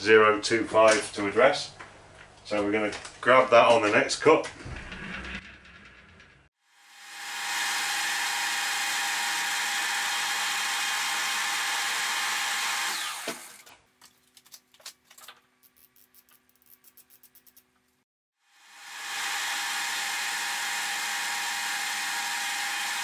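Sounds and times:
micrometer ratchet clicking: 15.6s - 17.7s.

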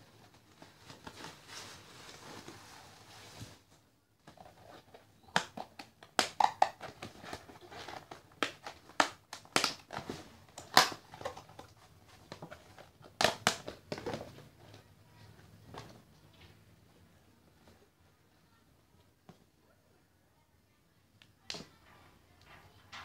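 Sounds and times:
plastic tub crinkling: 4.3s - 16.4s.

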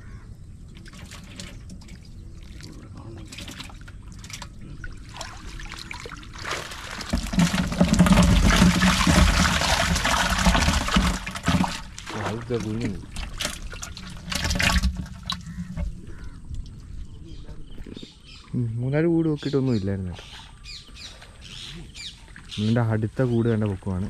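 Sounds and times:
water splashing and draining: 0.6s - 16.9s
water pouring into plastic container: 0.7s - 16.8s.

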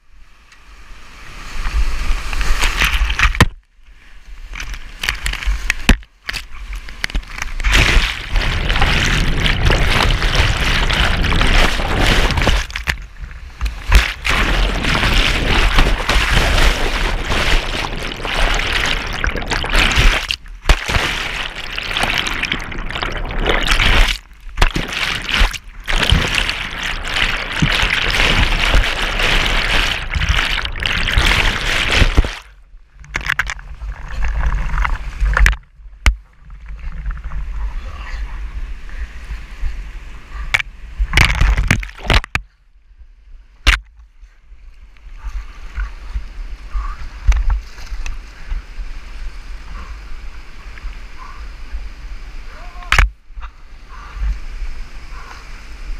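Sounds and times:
whitewater rushing: 7.6s - 13.0s, 13.6s - 32.5s.

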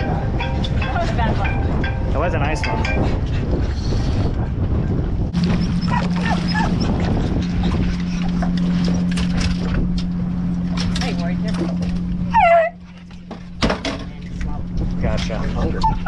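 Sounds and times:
steady low hum: 0.0s - 16.0s
dog whining and yelping: 5.5s - 7.1s, 12.3s - 13.0s, 15.6s - 16.0s.

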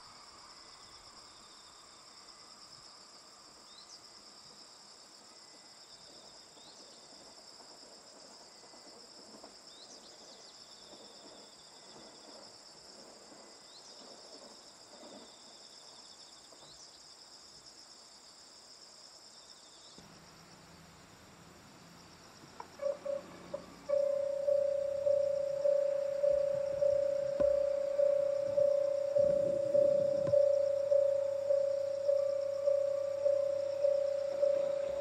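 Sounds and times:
insects trilling: 0.0s - 35.0s
short rising chirp: 22.8s - 35.0s.

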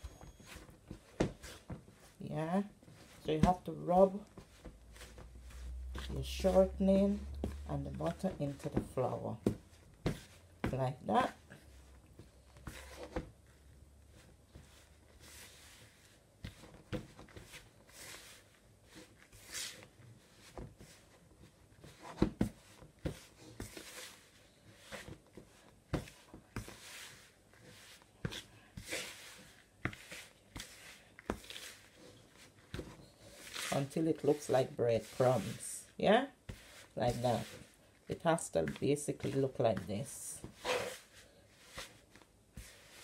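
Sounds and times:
pastry blender scraping flour mix: 33.1s - 41.9s.

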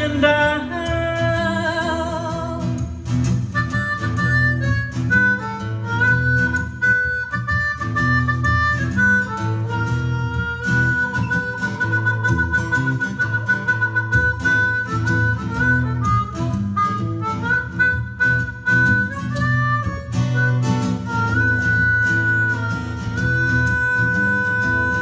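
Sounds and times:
acoustic guitar accompaniment: 0.0s - 25.0s
blues harmonica solo: 0.0s - 25.0s.

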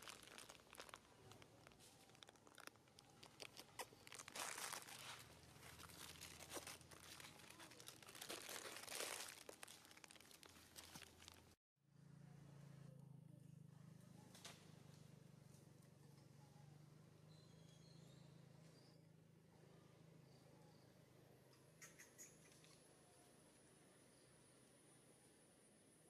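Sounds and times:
rustling of dry leaf litter: 0.0s - 11.6s.

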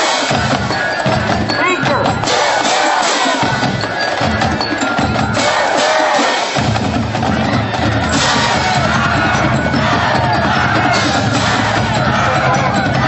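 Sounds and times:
marching band horns: 0.0s - 4.4s, 5.2s - 13.0s
drum line: 0.0s - 13.0s
bass drum steady beat: 6.6s - 13.0s.

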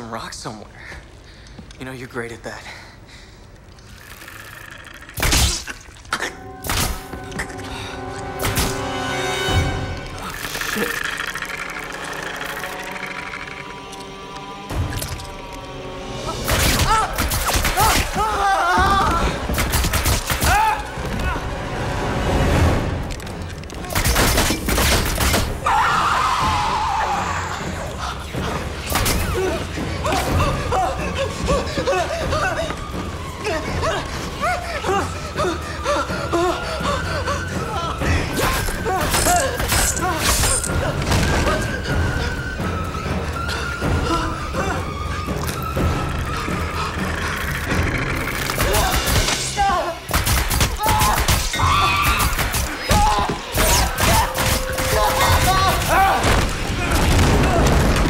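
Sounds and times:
tense orchestral score: 0.0s - 58.0s
chaotic impacts and crashes: 52.2s - 58.0s.

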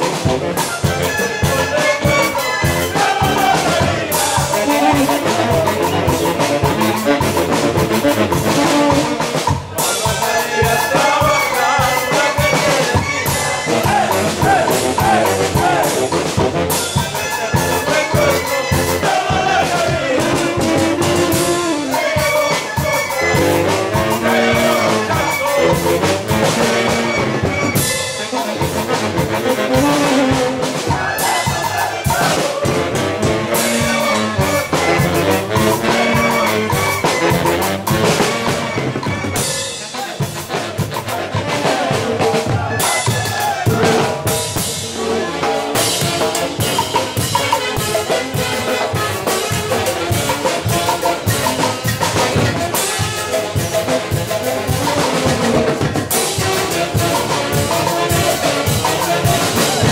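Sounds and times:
saxophone band playing dance music: 0.0s - 59.9s
man singing: 16.9s - 23.3s.

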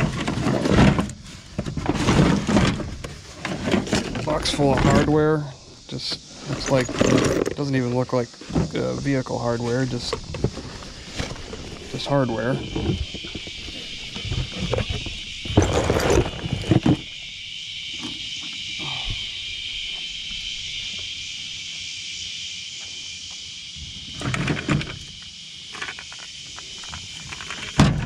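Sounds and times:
hardware clattering in toolbox: 6.4s - 7.7s, 12.7s - 17.1s.

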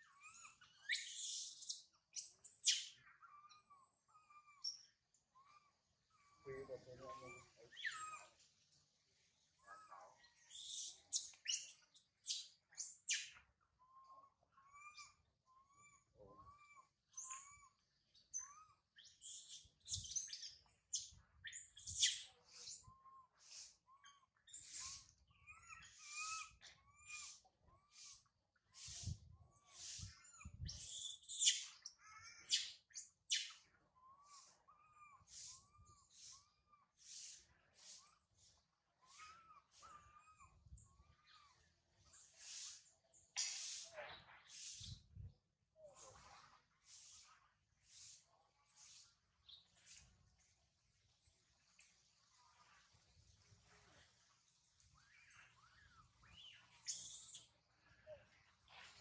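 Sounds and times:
baby monkey screeching: 0.0s - 4.9s, 6.4s - 8.3s, 9.7s - 23.2s, 24.0s - 28.2s, 29.7s - 35.9s, 39.0s - 42.7s, 55.0s - 57.5s
monkey screaming: 0.2s - 1.8s.

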